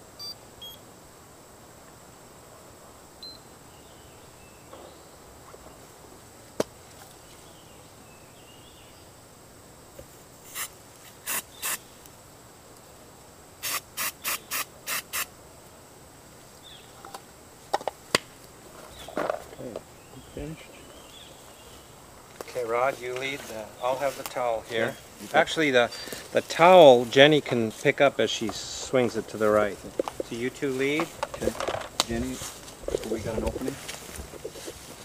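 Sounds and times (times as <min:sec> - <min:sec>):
faint high whine: 0:00.0 - 0:17.7
short hissing bursts: 0:10.4 - 0:12.0, 0:13.6 - 0:15.4.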